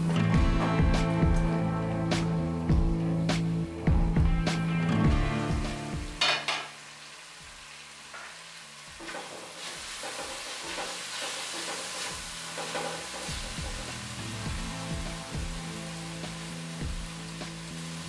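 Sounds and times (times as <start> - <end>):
chicken sizzling in oil: 2.2 - 18.0
spatula stirring in wok: 9.0 - 15.2.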